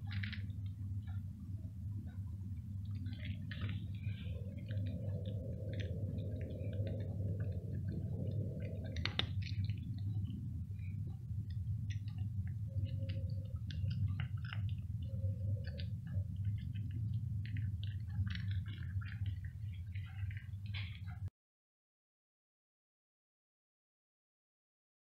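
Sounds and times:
steady low hum: 0.0s - 21.3s
cat crunching dry kibble: 2.6s - 21.1s.

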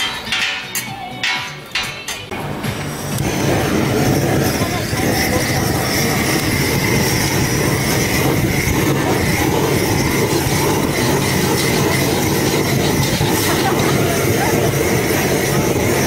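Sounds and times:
blowtorch hissing: 1.4s - 16.0s
thin steady whistle: 3.2s - 16.0s.

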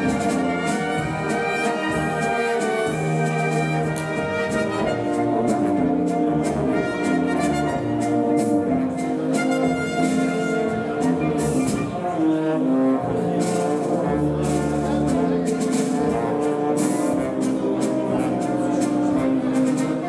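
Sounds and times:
brass waltz music: 0.0s - 20.0s.

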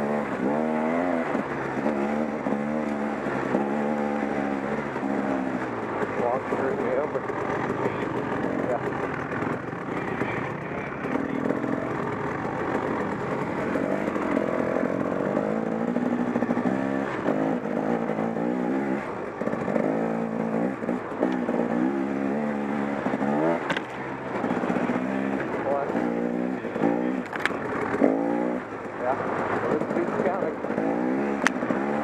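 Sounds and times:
two-stroke motorcycle engine revving: 0.0s - 32.0s.

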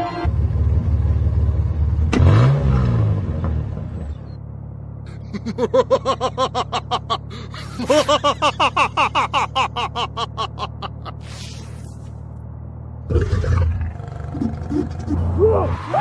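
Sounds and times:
van engine humming: 0.0s - 16.0s
cartoon voice laughing: 5.1s - 11.2s, 14.3s - 15.7s.

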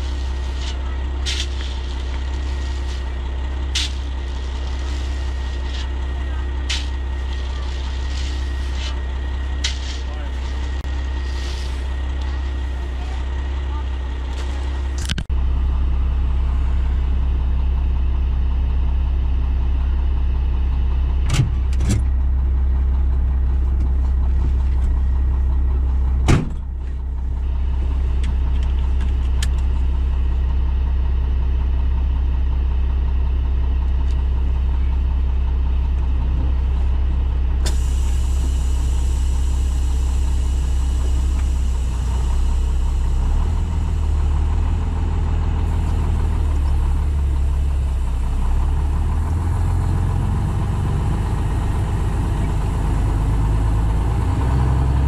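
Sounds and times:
truck engine idling: 0.0s - 55.0s
sharp clunks: 26.2s - 26.7s.

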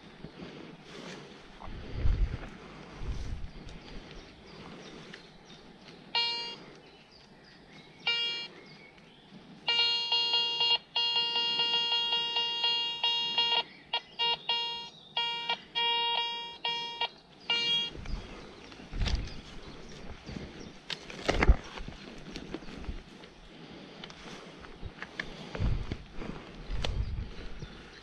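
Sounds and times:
metal detector beeping: 6.1s - 6.7s, 8.0s - 8.5s, 9.6s - 18.3s.

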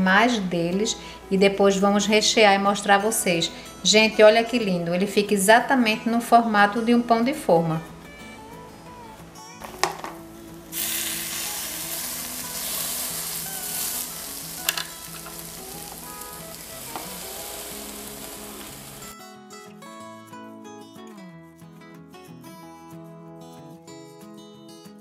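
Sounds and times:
bread sizzling on grill plates: 9.6s - 19.1s.

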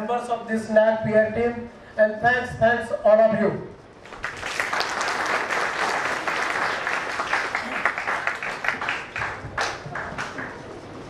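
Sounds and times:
audience applauding: 4.0s - 10.7s.

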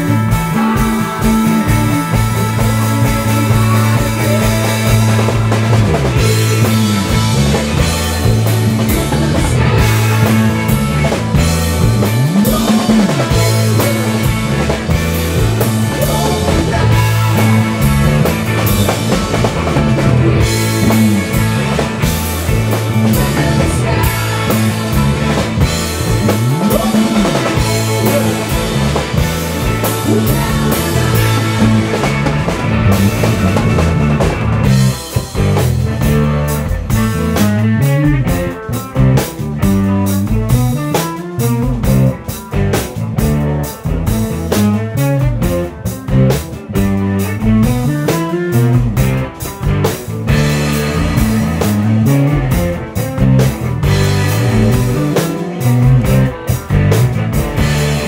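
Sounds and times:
rock band playing: 0.0s - 58.0s
low sliding notes: 13.2s - 35.1s.

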